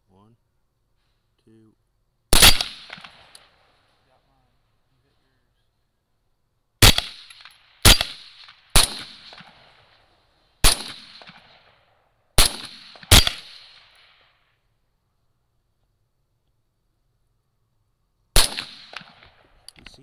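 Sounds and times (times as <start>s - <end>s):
rifle shots with echo: 2.3s - 3.9s, 6.8s - 14.4s, 18.4s - 20.0s.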